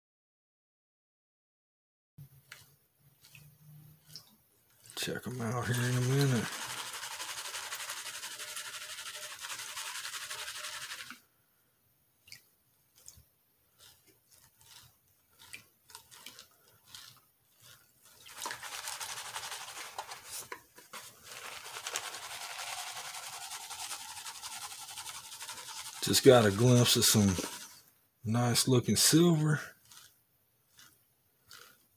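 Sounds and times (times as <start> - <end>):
small splashes and drips: 2.2 - 5.1, 12.2 - 18.6
water swishing in a pan: 2.4 - 11.0, 15.4 - 27.9.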